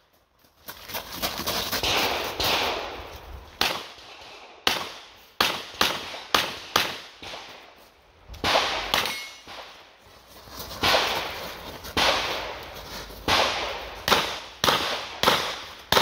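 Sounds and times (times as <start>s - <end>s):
revolver gunshots: 8.4s - 9.8s, 12.0s - 12.6s, 13.2s - 16.0s.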